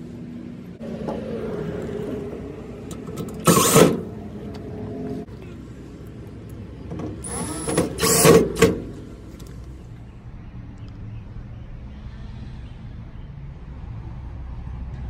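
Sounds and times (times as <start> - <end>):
cordless drill driving screws: 3.4 - 4.0, 7.2 - 8.8.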